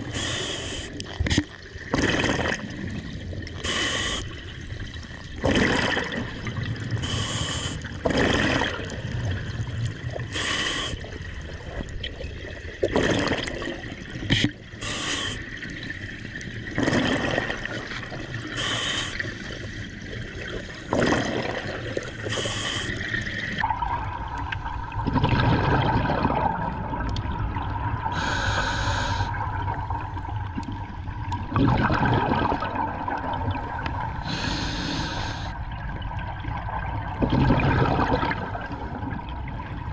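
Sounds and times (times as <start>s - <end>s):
regulator hiss on inhale: 0.1s - 1.0s, 3.6s - 4.3s, 7.0s - 7.9s, 10.3s - 11.1s, 14.8s - 15.5s, 18.5s - 19.9s, 22.3s - 23.0s, 28.1s - 29.3s, 34.2s - 35.6s
exhaled bubbles rushing: 1.4s - 3.6s, 4.4s - 7.0s, 7.8s - 10.4s, 11.1s - 14.5s, 15.5s - 18.6s, 19.8s - 22.4s, 23.0s - 28.1s, 29.4s - 34.2s, 35.8s - 39.9s.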